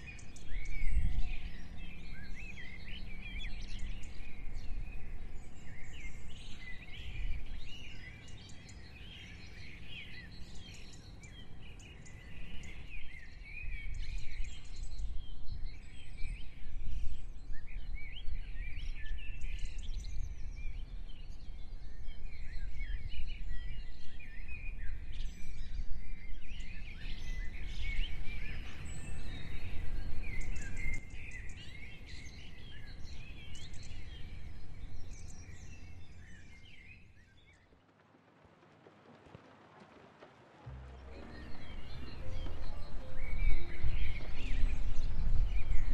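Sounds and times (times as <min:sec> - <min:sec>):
songbirds chirping and trilling: 0:00.0 - 0:38.0, 0:40.6 - 0:45.9
low uneven rumble: 0:37.8 - 0:45.9.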